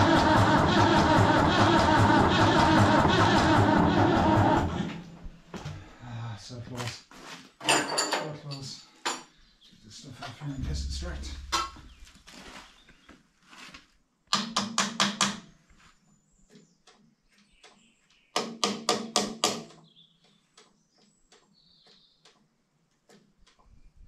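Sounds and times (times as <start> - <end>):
scattered clicks and knocks: 10.6 - 11.9.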